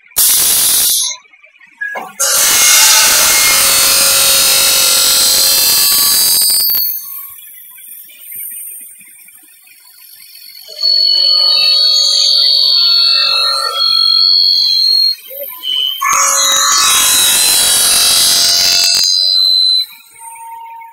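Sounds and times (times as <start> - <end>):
circular saw cutting aluminium: 0.2 - 1.2, 2.2 - 7.4, 10.6 - 20.6
high whining saw: 0.2 - 1.2, 2.2 - 7.4, 10.5 - 20.9.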